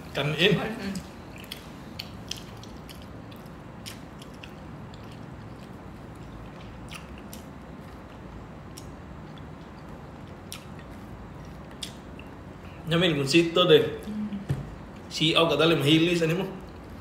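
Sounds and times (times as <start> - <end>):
steady low hum: 0.0 - 17.0
chewing and lip smacking: 0.9 - 12.8.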